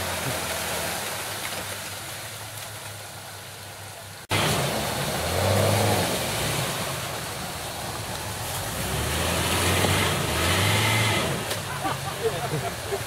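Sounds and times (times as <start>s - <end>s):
tyres churning through mud: 0.0s - 13.0s
engines running under load: 4.3s - 13.0s.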